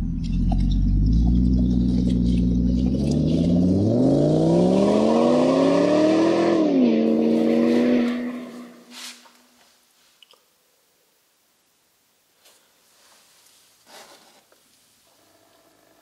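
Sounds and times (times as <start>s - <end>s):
car engine revving: 0.0s - 8.9s.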